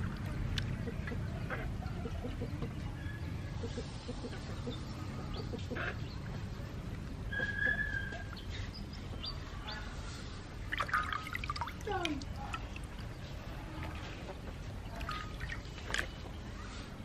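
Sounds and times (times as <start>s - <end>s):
birds chirping: 0.2s - 17.0s
hen clucking: 3.5s - 6.2s.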